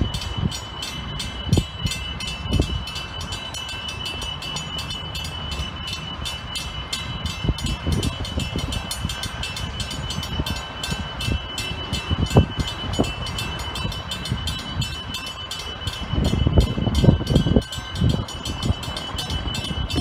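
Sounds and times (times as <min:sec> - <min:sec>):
electric train high whine: 0:00.0 - 0:20.0
wind buffeting microphone: 0:00.0 - 0:20.0.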